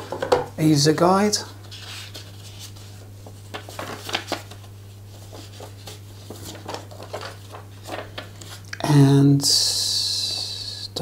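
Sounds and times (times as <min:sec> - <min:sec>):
steady low hum: 0:00.0 - 0:11.0
paper rustling and crinkling: 0:01.5 - 0:08.7.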